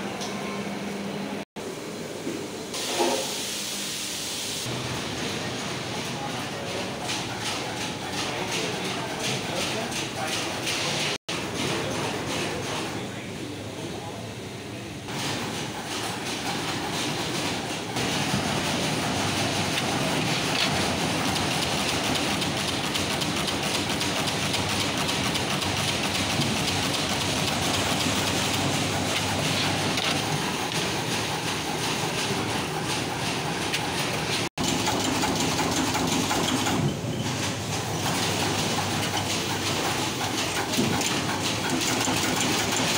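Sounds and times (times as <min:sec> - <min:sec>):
fast mechanical clatter: 0:15.1 - 0:42.9.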